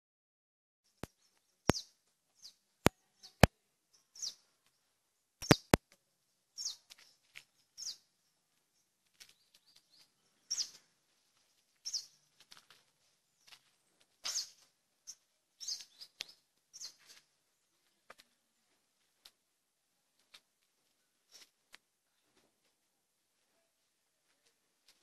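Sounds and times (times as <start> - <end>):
bird chirping: 0.9 - 5.8, 6.5 - 12.6, 13.3 - 18.8
sharp clicks: 5.4 - 6.0.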